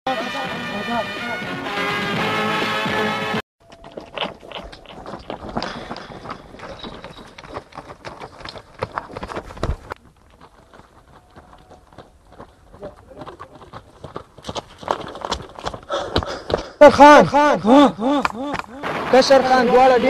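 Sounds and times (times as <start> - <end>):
footsteps on gravel: 3.6 - 16.8.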